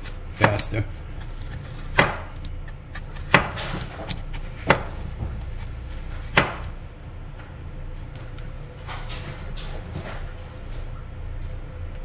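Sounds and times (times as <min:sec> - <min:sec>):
knife chopping on plastic board: 0:00.0 - 0:06.8.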